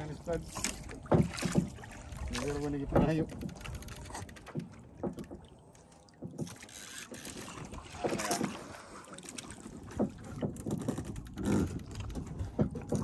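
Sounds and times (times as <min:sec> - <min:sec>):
water lapping against boat hull: 0:00.0 - 0:13.0
short knocks: 0:00.6 - 0:01.8, 0:09.8 - 0:13.0.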